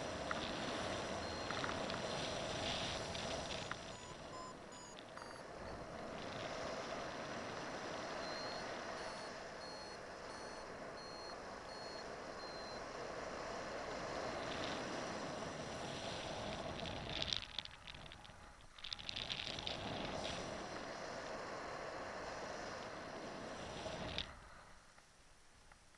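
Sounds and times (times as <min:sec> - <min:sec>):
variometer beeping: 0:01.0 - 0:02.0, 0:03.5 - 0:05.9, 0:08.1 - 0:12.9.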